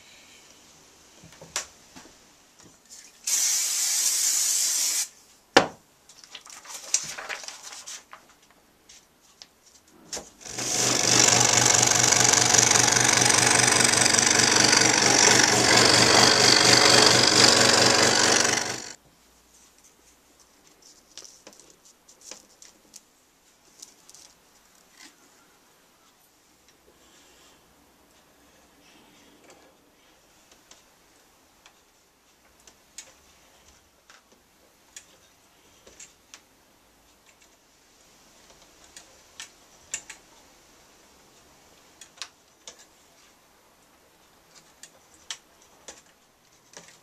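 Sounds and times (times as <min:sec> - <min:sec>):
short hissing burst: 0:03.2 - 0:05.1
scroll saw cutting wood: 0:10.4 - 0:19.0.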